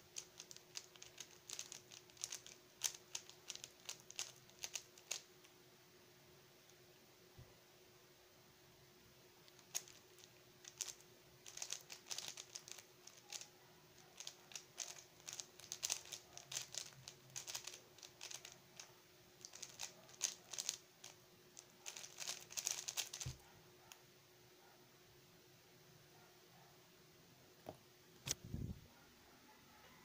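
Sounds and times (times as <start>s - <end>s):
puzzle cube clicking: 0.1s - 5.3s, 9.5s - 13.5s, 14.1s - 23.4s.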